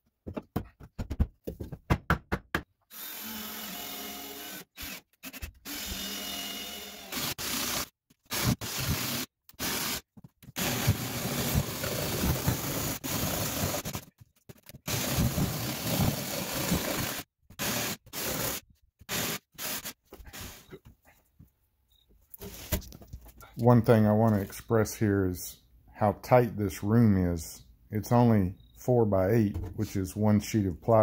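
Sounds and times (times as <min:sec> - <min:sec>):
jigsaw cutting wood: 0:02.9 - 0:10.0, 0:10.6 - 0:14.1, 0:14.8 - 0:20.6.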